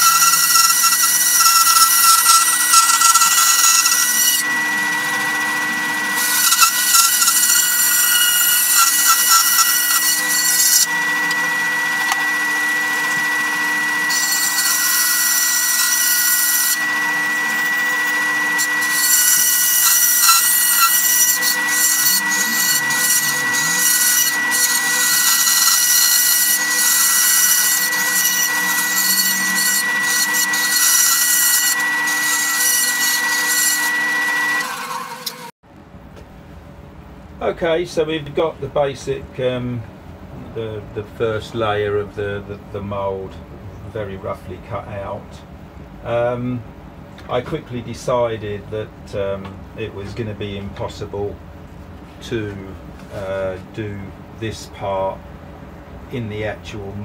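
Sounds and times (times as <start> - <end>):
bandsaw cutting plywood: 0.0 - 35.5.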